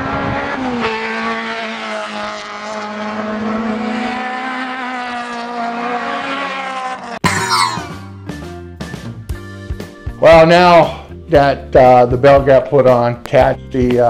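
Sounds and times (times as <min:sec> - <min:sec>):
race car engine at high revs: 0:00.0 - 0:07.7.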